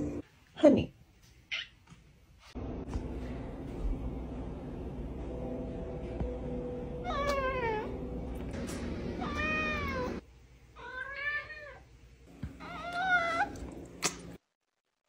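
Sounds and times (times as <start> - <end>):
cat meowing: 10.8 - 11.8.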